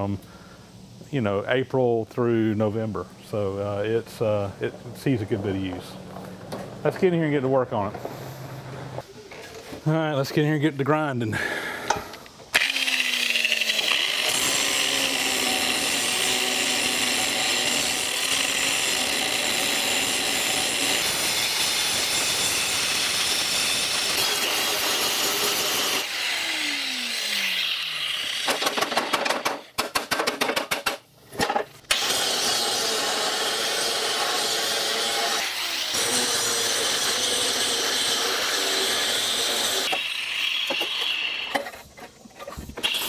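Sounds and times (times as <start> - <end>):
angle grinder cutting steel: 12.6 - 28.7, 31.9 - 41.6, 42.8 - 43.0.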